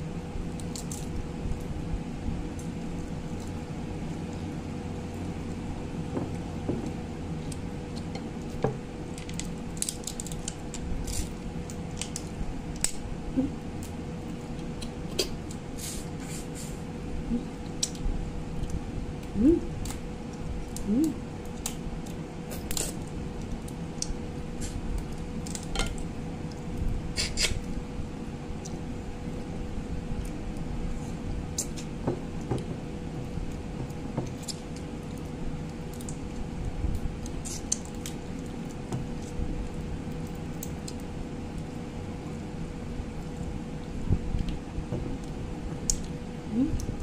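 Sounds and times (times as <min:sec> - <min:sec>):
steady background hum: 0:00.0 - 0:47.0
crab shell cracking: 0:09.1 - 0:13.0.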